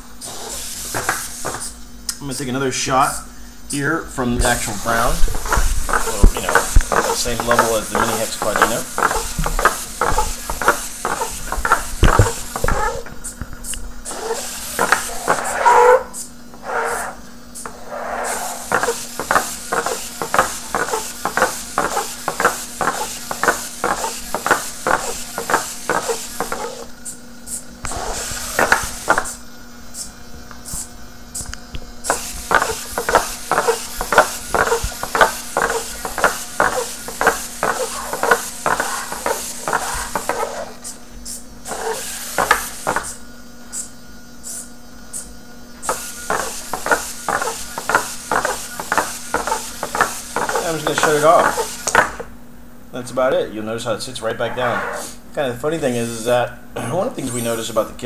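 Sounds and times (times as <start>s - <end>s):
robot servos whining: 0.2s - 1.8s, 4.4s - 29.4s, 30.0s - 52.3s
plastic feet tapping on desk: 0.9s - 1.7s, 5.4s - 13.1s, 14.8s - 15.5s, 18.6s - 26.8s, 28.5s - 29.3s, 32.1s - 40.6s, 41.7s - 43.2s, 45.9s - 52.3s.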